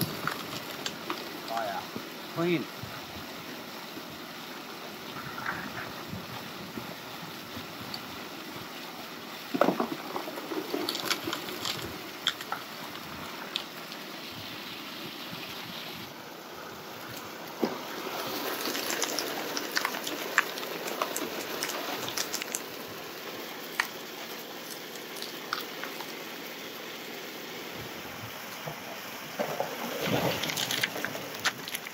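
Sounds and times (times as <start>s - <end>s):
water rushing over gravel: 0.0s - 31.9s.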